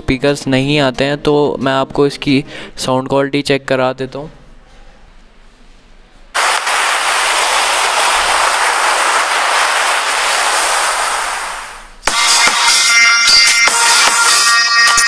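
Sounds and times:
speaker hiss: 0:06.4 - 0:12.4.

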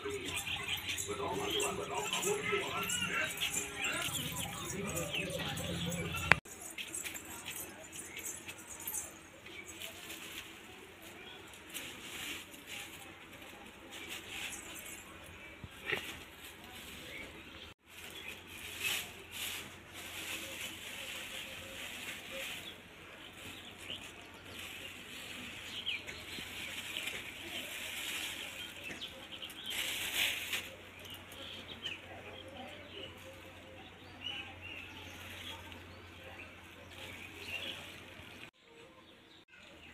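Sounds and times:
plastic bags rustling: 0:00.0 - 0:31.6.

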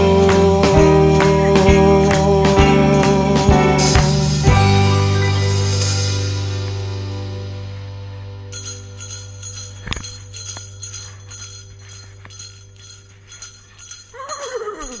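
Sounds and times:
small jingle bells shaking: 0:00.0 - 0:04.6, 0:08.5 - 0:15.0
steady low hum: 0:05.7 - 0:14.2.

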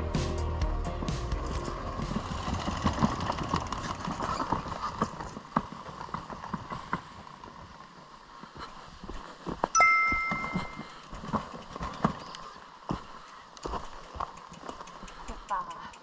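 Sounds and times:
bicycle rattling and clicking: 0:01.7 - 0:06.9, 0:13.2 - 0:16.0
bright two-pitch bell ring: 0:09.8 - 0:10.9.

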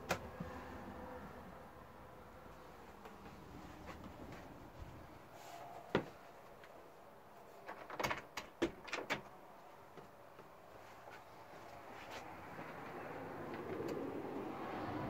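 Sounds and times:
sharp knocks and rattles: 0:07.6 - 0:09.4
wooden door clicking shut: 0:07.7 - 0:09.3.

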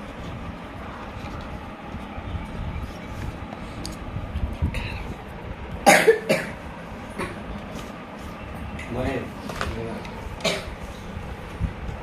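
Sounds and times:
person coughing: 0:05.8 - 0:06.6, 0:10.4 - 0:10.8.

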